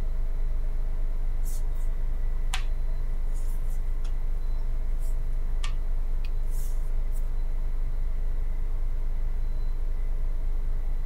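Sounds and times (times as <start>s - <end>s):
faint high whistle: 9.3s - 10.6s.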